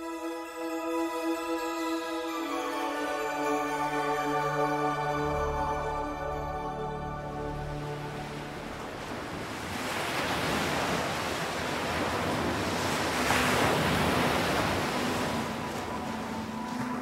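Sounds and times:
waves breaking on beach: 7.7s - 17.0s.

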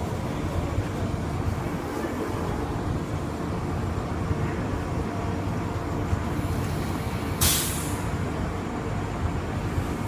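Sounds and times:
people-mover car rumbling: 0.0s - 10.0s
short hiss of air: 6.4s - 8.1s.

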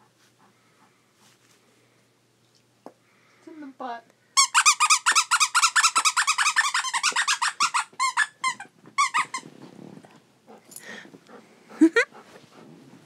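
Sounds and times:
squeaky dog toy squeaking: 4.4s - 9.4s.

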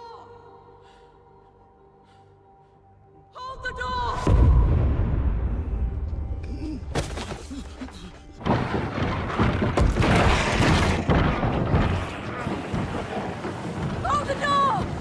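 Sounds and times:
dramatic film score: 0.0s - 15.0s
heavy crashes and thuds: 8.4s - 15.0s.

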